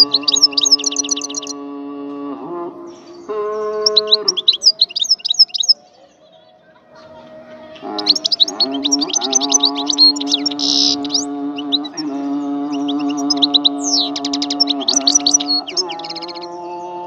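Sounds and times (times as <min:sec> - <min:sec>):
goldfinch twittering: 0:00.0 - 0:01.6, 0:03.6 - 0:05.8, 0:07.9 - 0:16.6
background music sustained notes: 0:06.8 - 0:17.0.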